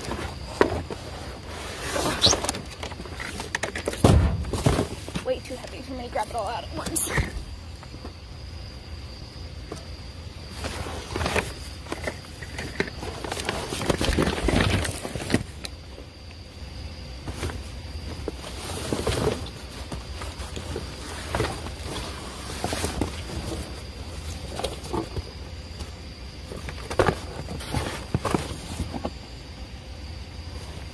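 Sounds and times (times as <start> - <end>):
plastic bottles shifting: 0.0 - 8.1, 10.5 - 15.8
cardboard and plastic bags rustling: 0.0 - 8.2, 9.6 - 16.2, 17.1 - 29.5.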